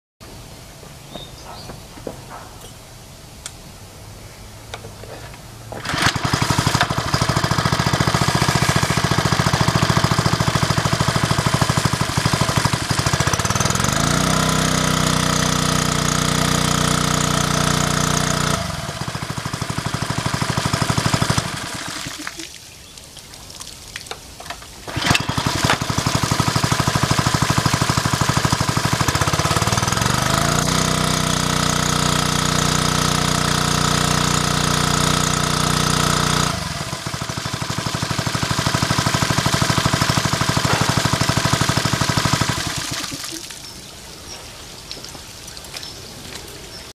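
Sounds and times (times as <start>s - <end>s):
water pumping out: 5.6s - 46.9s
small water pump engine running: 5.7s - 22.5s, 24.8s - 43.7s.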